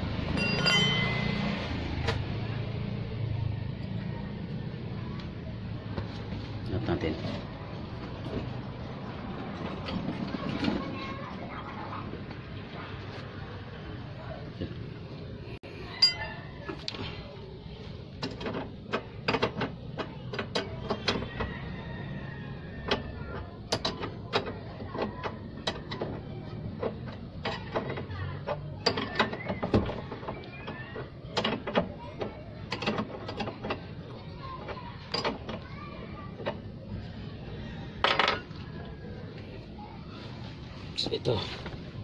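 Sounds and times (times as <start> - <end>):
hand tools clinking on metal: 0.4 - 1.5, 16.0 - 16.4.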